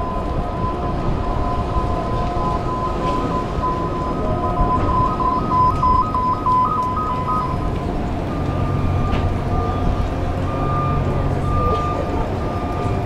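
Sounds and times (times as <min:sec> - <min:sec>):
city street traffic: 0:00.0 - 0:13.0
low vehicle engine hum: 0:00.0 - 0:13.0
two-pitch electronic warning beeper: 0:00.1 - 0:07.7.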